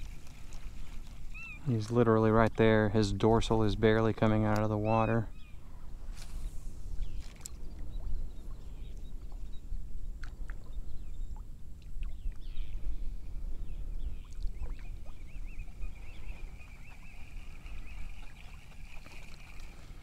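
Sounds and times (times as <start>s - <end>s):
wind rumble on microphone: 0.0s - 20.0s
water trickling: 14.3s - 20.0s.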